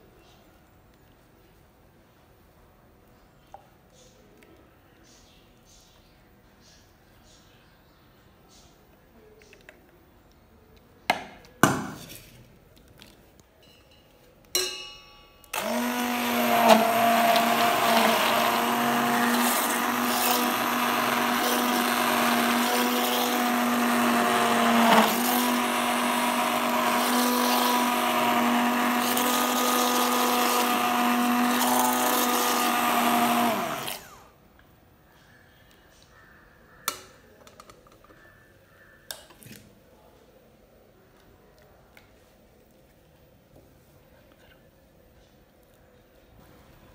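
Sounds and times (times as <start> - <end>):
hand blender running: 15.6 - 34.2.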